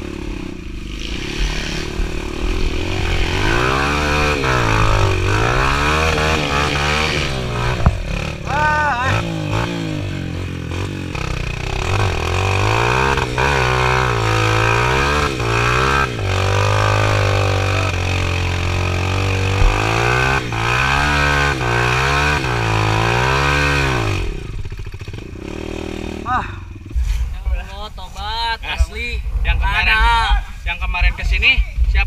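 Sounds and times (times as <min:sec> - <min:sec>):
dirt bike engine revving: 0:00.0 - 0:27.8.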